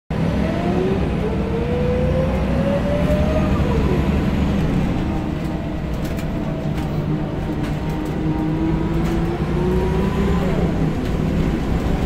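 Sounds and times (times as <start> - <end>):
bus engine drone: 0.1 - 12.0.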